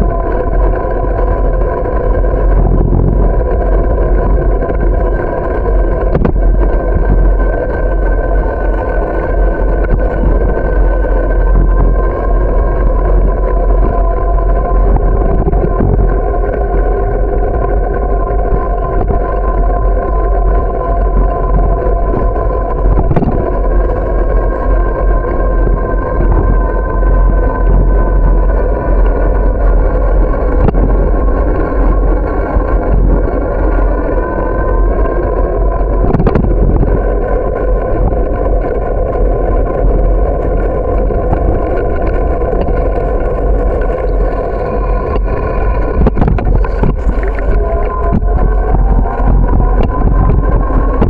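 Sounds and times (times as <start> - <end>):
bicycle hum: 0.0 - 51.0
wind buffeting microphone: 0.0 - 51.0.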